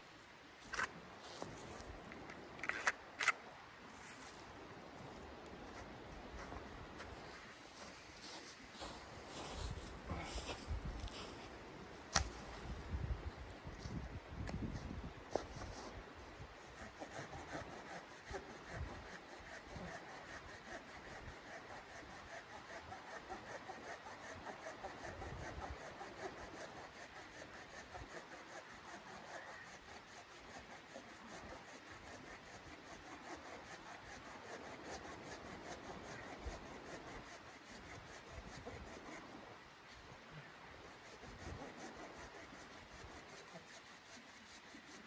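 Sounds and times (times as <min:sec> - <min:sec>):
hand saw rasping through wood: 0:16.6 - 0:39.3, 0:40.9 - 0:45.0.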